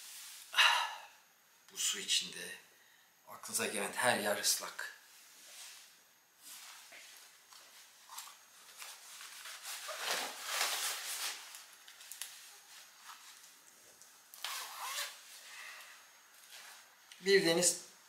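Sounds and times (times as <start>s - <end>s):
rain gear fabric rustling: 14.4s - 15.4s.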